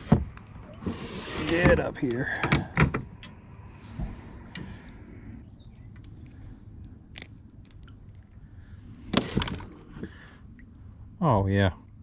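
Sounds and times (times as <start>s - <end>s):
low steady rumble: 3.0s - 12.0s.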